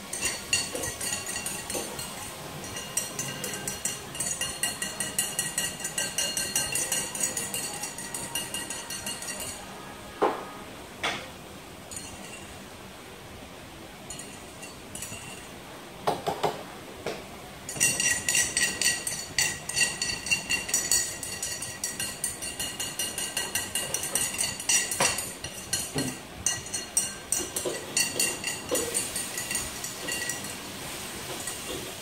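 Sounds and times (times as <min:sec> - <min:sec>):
hard objects clinking: 0:00.0 - 0:09.7, 0:17.7 - 0:30.6.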